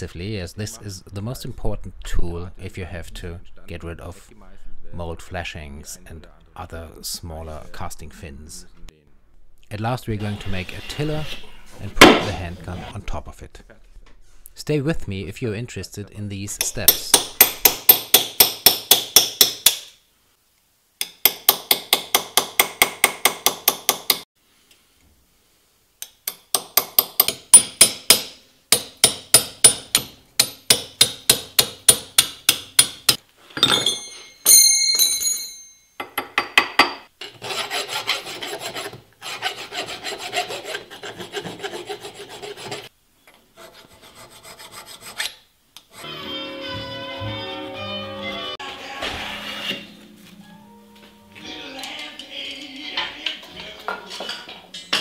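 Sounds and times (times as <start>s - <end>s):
hammer tapping chisel on metal: 26.0s - 37.4s
ringing metal clink: 33.6s - 36.2s
file rasping on metal: 37.2s - 42.9s, 43.6s - 45.4s.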